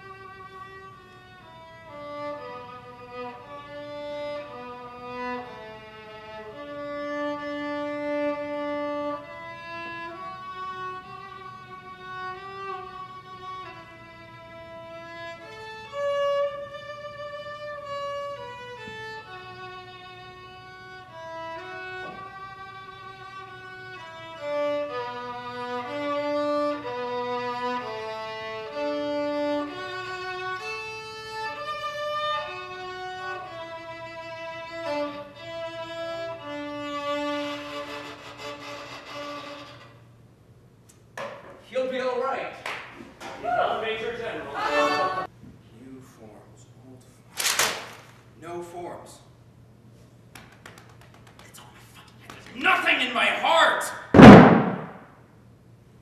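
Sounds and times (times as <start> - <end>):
solo violin melody: 0.0 - 40.2, 44.2 - 45.3.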